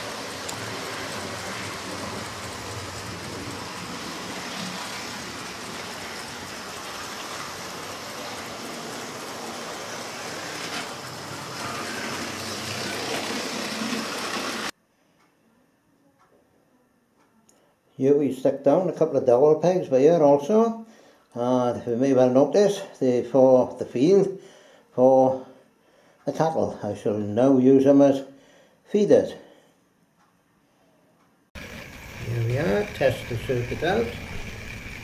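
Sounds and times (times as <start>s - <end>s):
model trains running on track: 0.0s - 14.7s, 31.6s - 35.0s.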